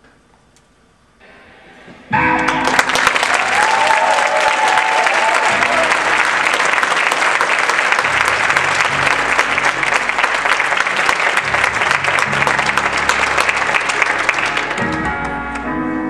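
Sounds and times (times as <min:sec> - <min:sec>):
audience applause: 0:02.2 - 0:15.6
music in slow low notes: 0:05.5 - 0:16.0.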